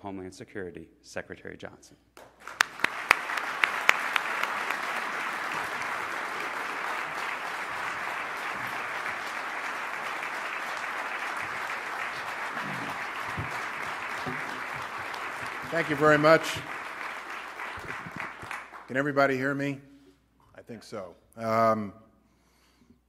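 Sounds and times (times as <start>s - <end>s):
audience applauding: 2.2s - 19.1s.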